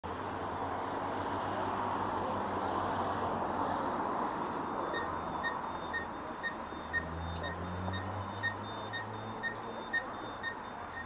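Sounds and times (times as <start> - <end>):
passing cars: 0.1 - 11.0
crossing signal high beeps: 4.8 - 11.0.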